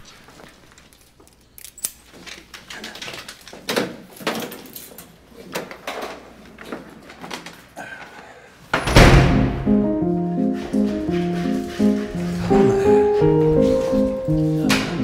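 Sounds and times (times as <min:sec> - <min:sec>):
footsteps: 0:08.8 - 0:15.0
rustling: 0:10.2 - 0:15.0.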